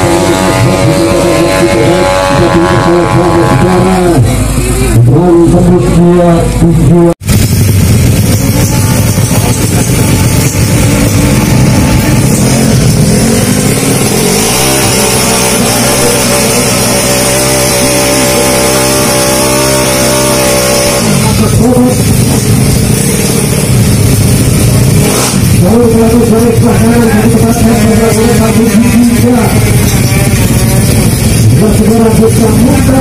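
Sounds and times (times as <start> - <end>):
scooter engine revving: 0.0 - 33.0.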